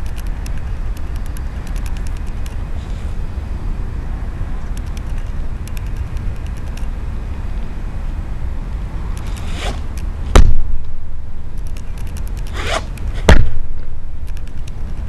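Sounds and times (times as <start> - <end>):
swish of clothing: 9.3 - 9.9
loud sharp thuds: 9.5 - 11.0, 12.7 - 14.0
foot stomp: 10.3 - 10.8, 13.3 - 13.9.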